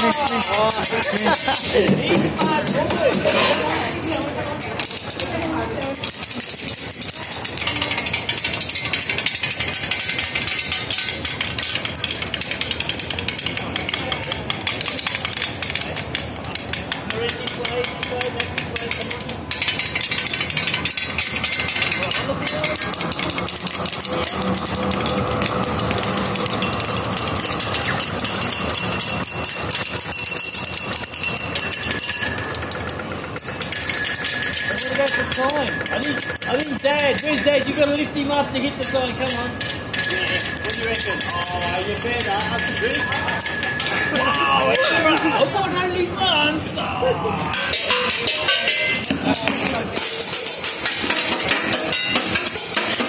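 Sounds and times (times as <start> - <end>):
city street noise: 0.0 - 53.0
bicycle freewheel ratchet clicking: 4.6 - 44.3.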